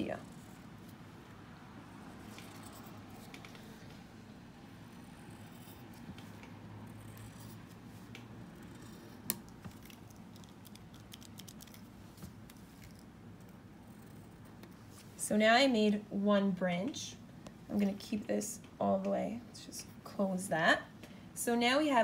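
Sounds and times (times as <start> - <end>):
pencil scratching on paper: 2.1 - 3.9, 5.0 - 6.1, 6.9 - 7.8.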